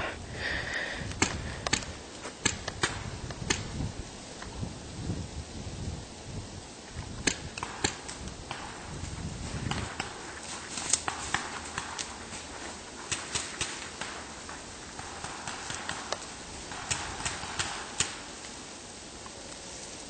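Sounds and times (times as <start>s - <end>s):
sharp snaps and clicks: 1.1s - 3.7s, 7.0s - 8.7s, 10.8s - 12.2s, 15.5s - 18.2s
footsteps crunching through dry leaves: 8.8s - 17.2s.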